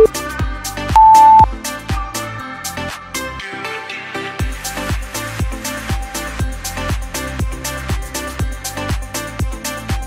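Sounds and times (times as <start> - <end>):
interval timer beeps: 1.0 - 1.5.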